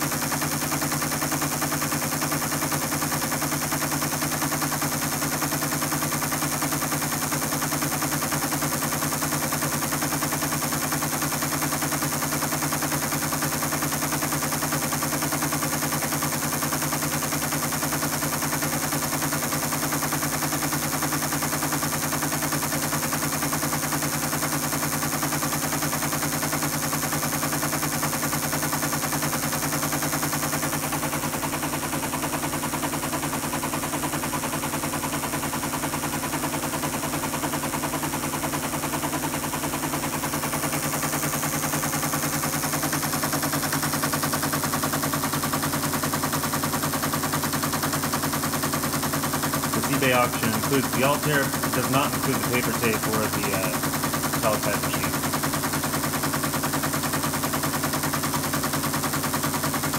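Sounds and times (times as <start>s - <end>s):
motor hum: 0.0s - 59.9s.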